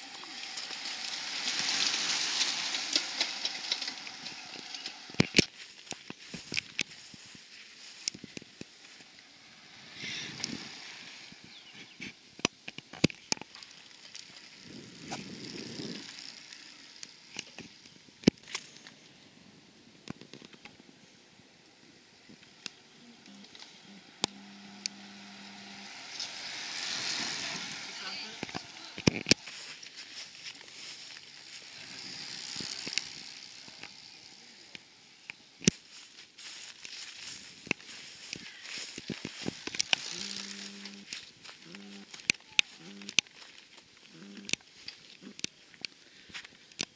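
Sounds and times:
bicycle tyres rushing past: 0.0s - 12.4s, 13.5s - 19.8s, 21.4s - 35.2s.

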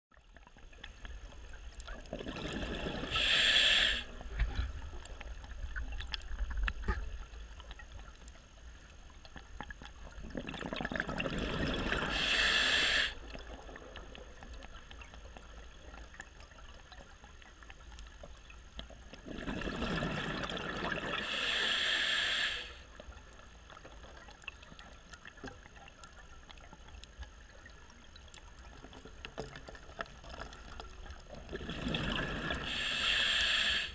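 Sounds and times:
bubbling rush: 2.1s - 4.8s, 10.2s - 13.5s, 19.2s - 21.4s, 31.4s - 33.1s
diver breathing through regulator: 2.6s - 4.3s, 11.7s - 13.2s, 21.2s - 22.9s, 31.6s - 33.9s.

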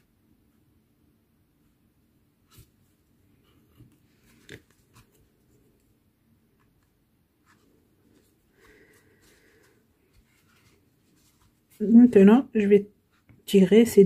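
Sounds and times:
yarn rustling: 7.4s - 12.4s.

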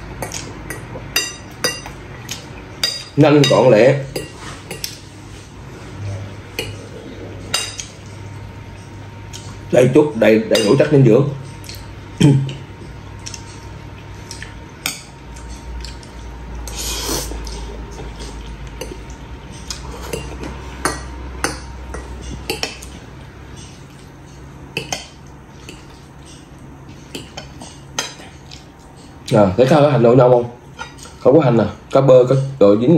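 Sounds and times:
cutlery clinking on ceramic bowl: 0.2s - 5.0s, 7.5s - 7.9s, 10.5s - 10.9s, 18.8s - 24.0s, 24.8s - 26.5s.

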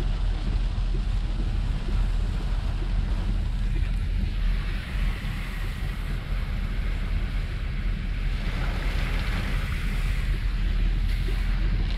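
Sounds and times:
heavy rain: 0.0s - 11.9s
wind buffeting microphone: 0.0s - 11.9s.

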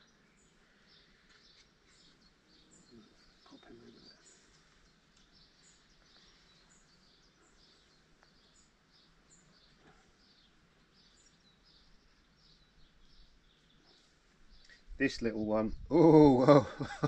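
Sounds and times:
faint bird chirping: 0.0s - 17.0s.

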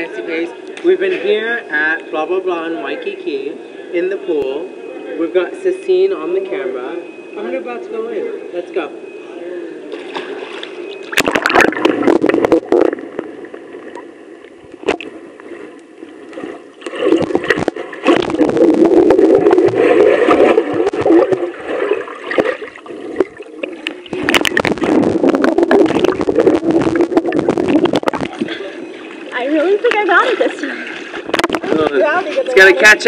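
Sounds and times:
bubbles: 10.0s - 29.4s
muffled underwater rushing water: 10.2s - 32.0s.

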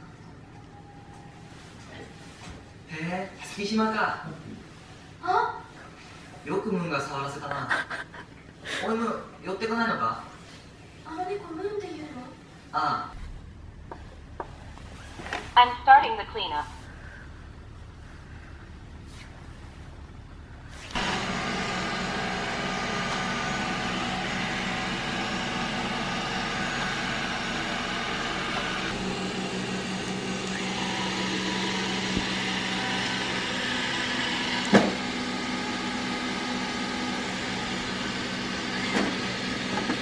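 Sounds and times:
robot vacuum cleaner whirring: 20.8s - 40.0s.

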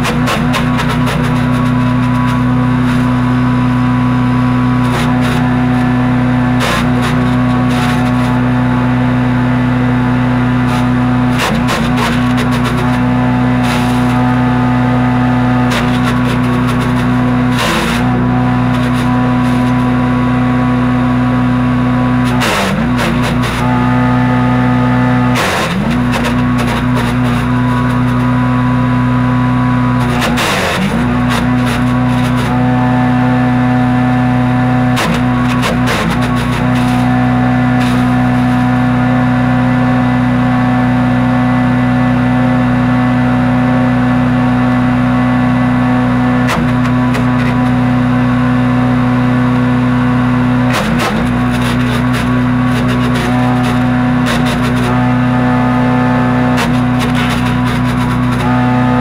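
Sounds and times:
wood being chipped crackles: 0.0s - 8.6s, 10.0s - 20.8s, 21.6s - 33.0s, 33.7s - 39.0s, 50.3s - 59.0s
wood chipper engine running: 0.0s - 59.0s.

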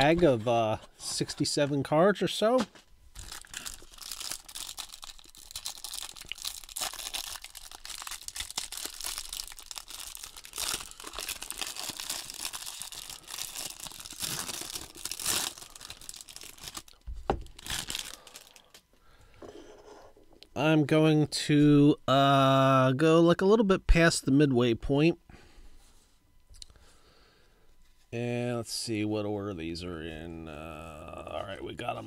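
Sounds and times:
plastic bag crinkling: 3.1s - 18.8s.

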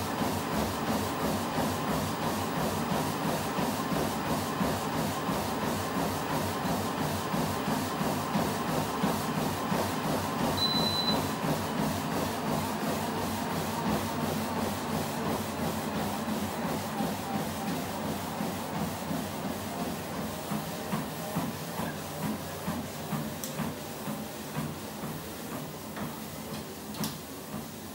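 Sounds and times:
running footsteps on treadmill: 0.0s - 27.9s
treadmill belt and motor hiss: 0.0s - 27.9s
short high beep: 10.6s - 11.3s.

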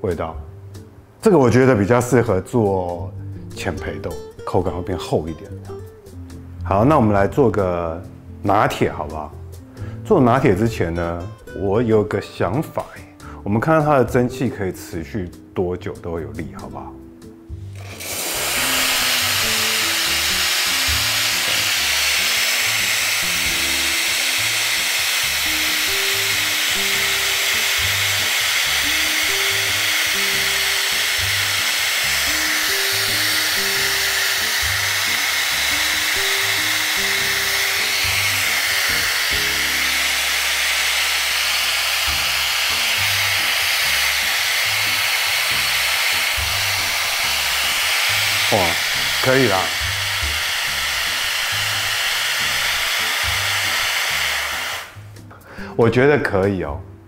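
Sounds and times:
background music with low notes: 0.0s - 57.0s
espresso steam wand hissing: 17.6s - 55.1s.

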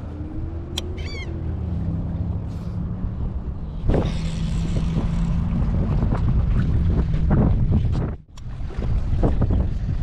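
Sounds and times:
wind buffeting microphone: 3.3s - 10.0s.

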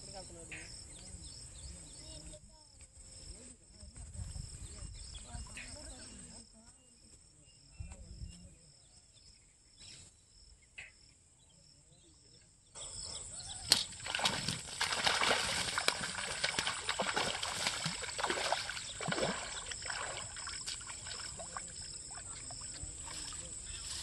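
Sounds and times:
fish thrashing and splashing: 13.7s - 23.7s.

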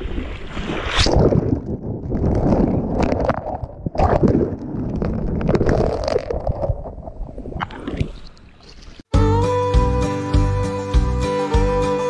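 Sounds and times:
water splashing: 0.0s - 9.1s.

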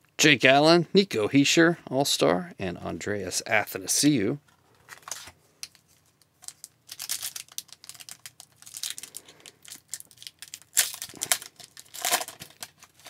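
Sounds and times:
foil wrapper crinkling and tearing: 4.9s - 13.0s.

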